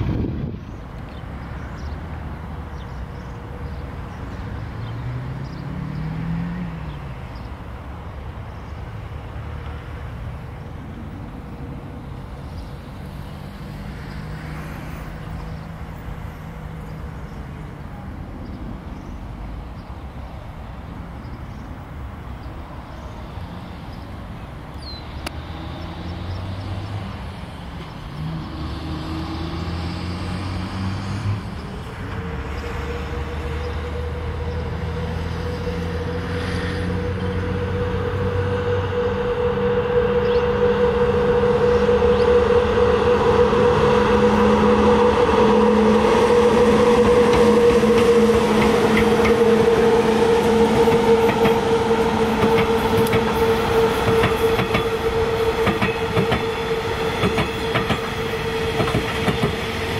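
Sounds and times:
electric train rumble and hum: 0.0s - 59.9s
road traffic noise: 0.0s - 59.9s
rising and falling tone: 32.3s - 59.1s.

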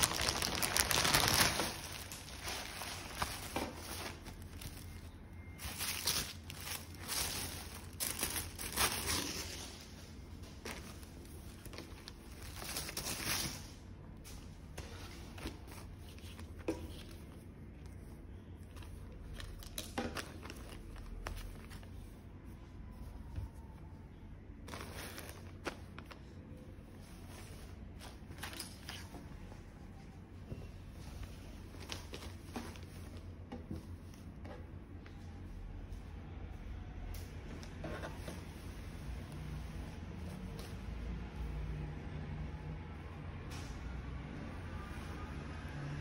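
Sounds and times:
fabric rustling: 0.0s - 13.6s
tissue paper crinkling: 0.0s - 13.7s, 24.6s - 29.2s
plastic bag crinkling: 0.0s - 13.8s.

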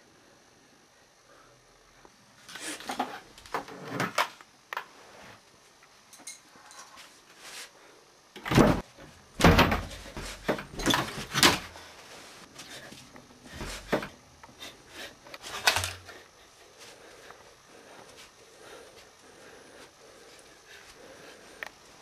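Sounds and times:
wooden cupboard door banging: 8.4s - 8.8s, 9.4s - 11.6s.

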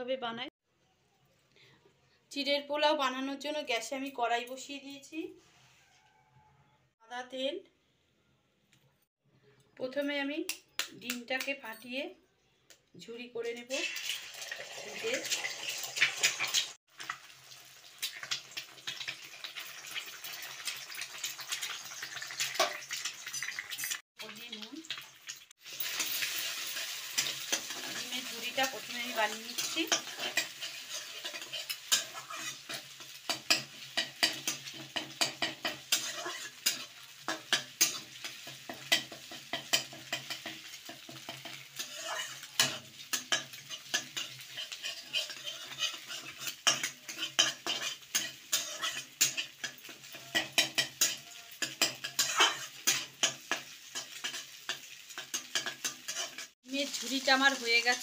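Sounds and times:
eggs sizzling in hot oil: 13.5s - 58.0s
metal spatula scraping pan: 25.7s - 57.1s.

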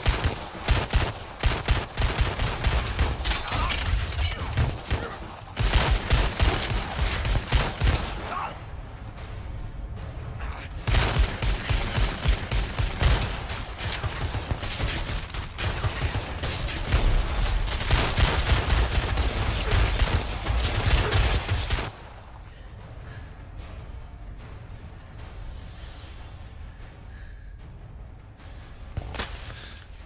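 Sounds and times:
rapid gunfire: 0.0s - 8.5s, 10.8s - 22.0s.

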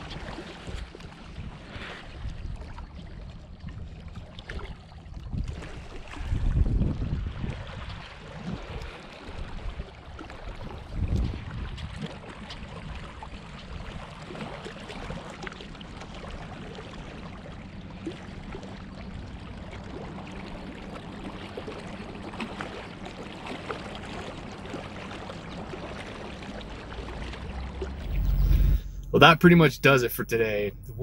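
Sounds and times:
wind rumbling on microphone: 0.0s - 14.0s, 27.4s - 29.2s
waves lapping against rocks: 4.0s - 17.4s, 19.9s - 29.1s.

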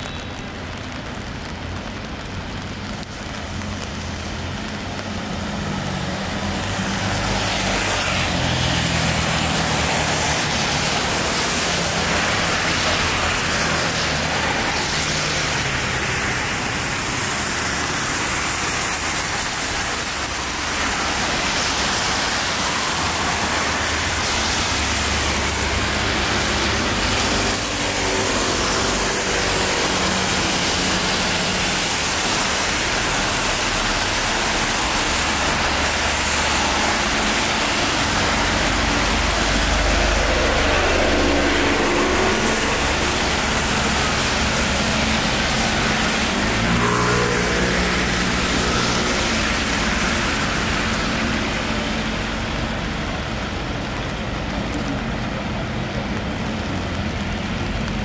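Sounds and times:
traffic engines running: 0.0s - 58.0s
tyres hissing on wet road: 0.0s - 58.0s.

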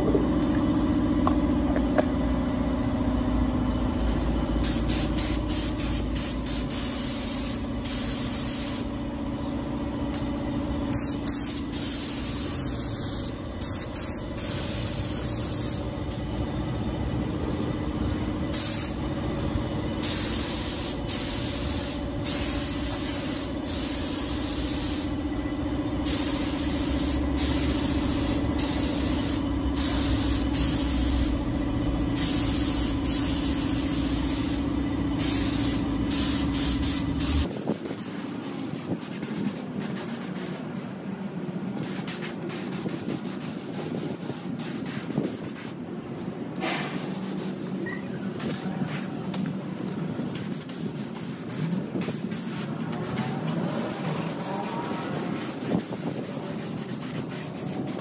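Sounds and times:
machine hum: 0.0s - 42.6s
paint spray gun hissing: 4.6s - 8.9s, 10.9s - 15.9s, 18.5s - 19.0s, 20.0s - 25.2s, 26.0s - 31.4s, 32.2s - 40.7s, 41.8s - 45.8s, 46.8s - 47.7s, 50.3s - 53.2s.

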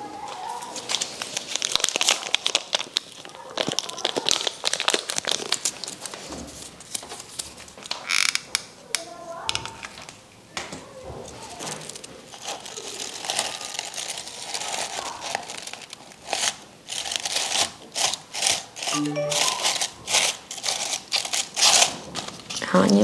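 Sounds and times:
paper crinkling and rustling: 0.1s - 8.1s, 11.0s - 23.0s.

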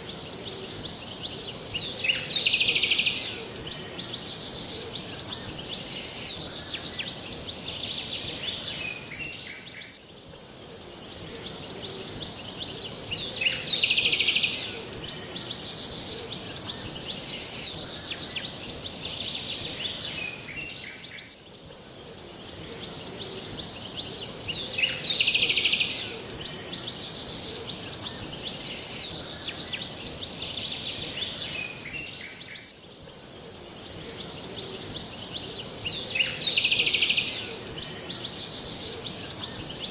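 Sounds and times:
steady hiss: 0.0s - 39.9s.

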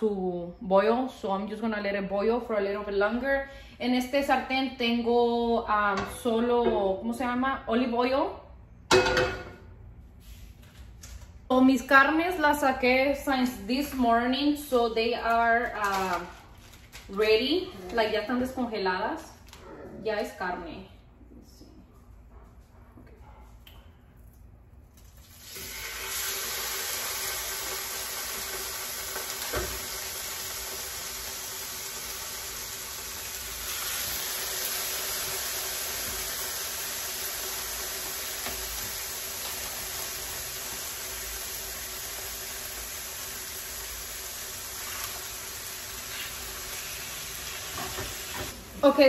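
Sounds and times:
meat sizzling in a frying pan: 25.3s - 48.8s.

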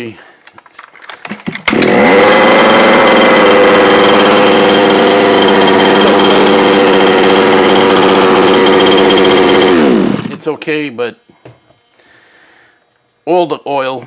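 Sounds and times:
two-stroke engine idling: 2.0s - 10.4s.

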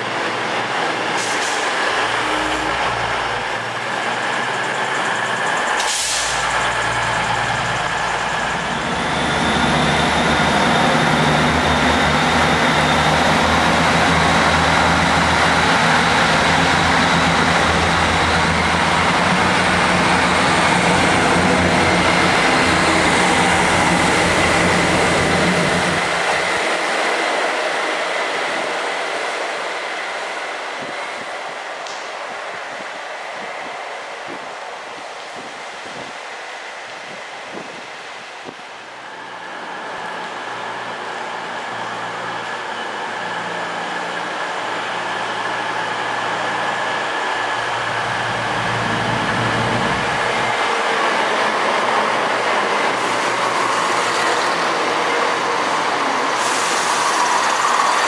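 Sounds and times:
diesel engines running loudly: 0.0s - 26.6s, 40.6s - 58.0s
passing train rumble: 0.0s - 58.0s.

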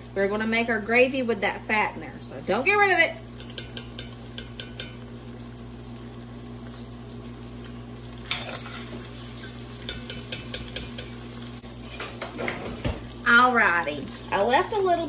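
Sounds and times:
sausage sizzling in fat: 0.0s - 15.0s
metal spoon scraping a pot: 8.3s - 11.1s.

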